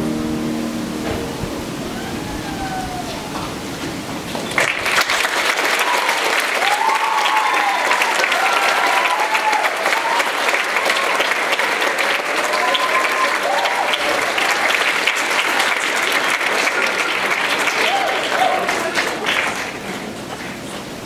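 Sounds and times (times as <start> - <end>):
voices calling out: 1.3 - 4.5
audience applauding: 1.9 - 21.0.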